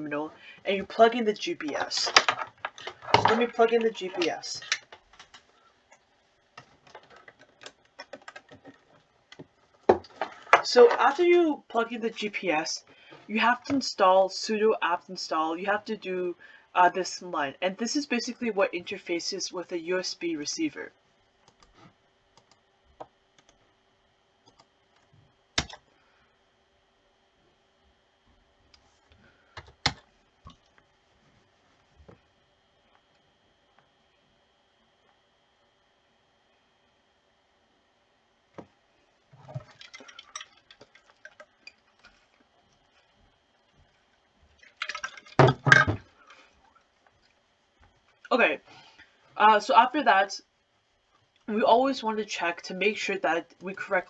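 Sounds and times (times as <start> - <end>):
faint steady hum: 0.0 - 54.0
computer mouse clicks: 22.4 - 23.6.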